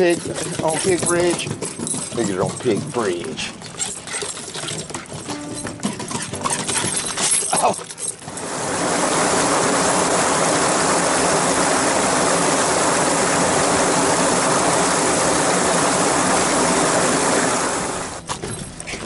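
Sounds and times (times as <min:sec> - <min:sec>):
creek water rushing over cascades: 0:08.3 - 0:18.2.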